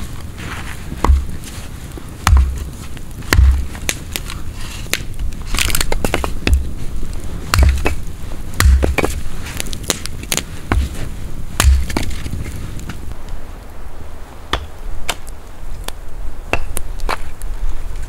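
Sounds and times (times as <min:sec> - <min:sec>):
woody cracks and crunching: 0:00.0 - 0:13.4
heavy thuds of logs: 0:00.9 - 0:06.8, 0:07.5 - 0:13.0.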